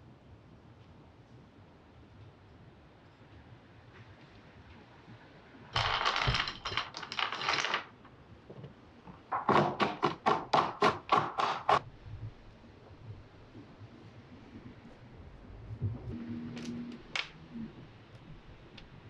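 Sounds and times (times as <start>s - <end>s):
peanuts clattering onto wooden board: 5.8s - 8.1s.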